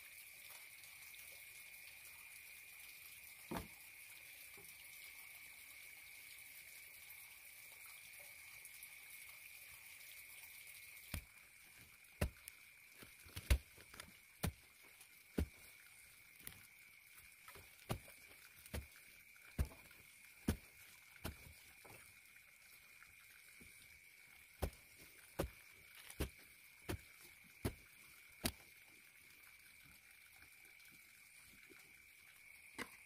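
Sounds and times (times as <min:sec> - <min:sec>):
digging stick thudding into soil: 0:12.2 - 0:12.4, 0:13.3 - 0:14.6, 0:15.4 - 0:15.6, 0:17.9 - 0:18.9, 0:19.6 - 0:19.9, 0:20.5 - 0:21.6, 0:24.6 - 0:24.8, 0:25.4 - 0:27.0.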